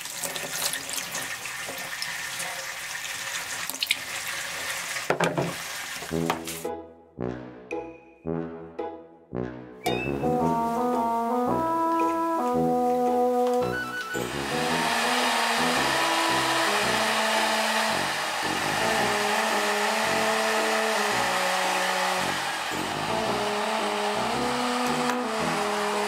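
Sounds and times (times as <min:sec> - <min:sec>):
background music: 0:06.1 - 0:26.0
blow dryer running: 0:10.1 - 0:26.0.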